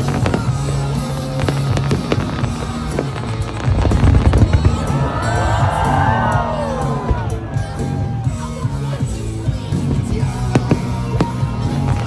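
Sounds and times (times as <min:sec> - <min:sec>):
heavy firework booms: 0:00.0 - 0:06.3
fireworks bursting: 0:00.0 - 0:08.1, 0:09.6 - 0:12.0
music with steady bass line: 0:00.0 - 0:12.0.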